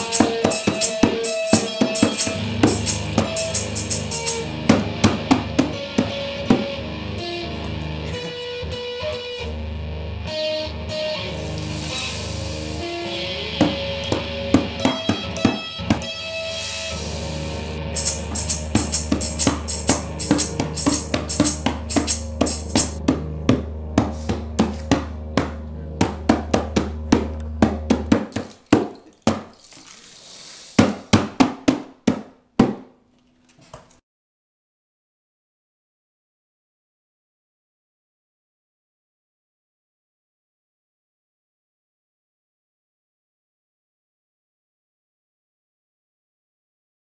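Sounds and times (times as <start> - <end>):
tambourine rhythm: 0.0 - 4.6, 11.4 - 13.2, 16.3 - 23.0
didgeridoo drone: 0.0 - 28.3.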